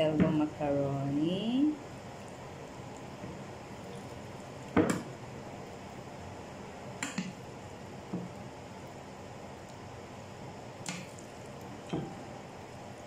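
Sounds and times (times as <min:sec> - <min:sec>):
faint steady hiss: 0:00.0 - 0:13.0
spoon tapping and squishing pasta: 0:10.8 - 0:12.2.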